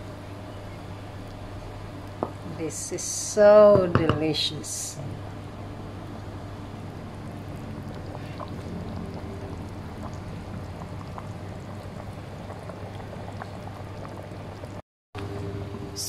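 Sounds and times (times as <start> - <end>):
low hum: 0.0 - 16.0
curry bubbling in a frying pan: 5.2 - 14.8.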